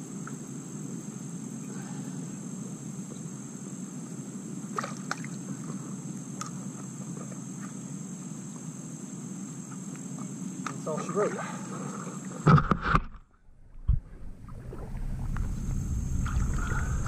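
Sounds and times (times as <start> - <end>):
high insect drone: 0.0 - 12.9, 14.3 - 17.0
water sloshing around waders: 4.7 - 7.8.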